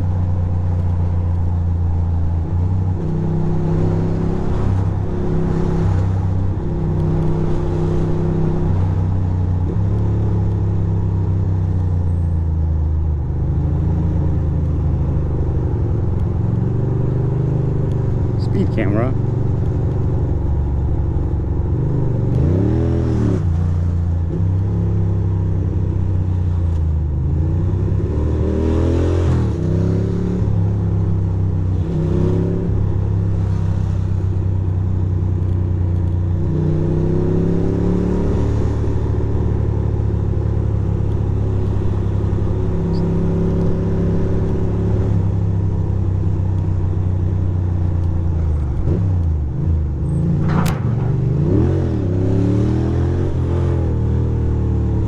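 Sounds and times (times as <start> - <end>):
motorcycle engine revving: 36.0 - 48.0.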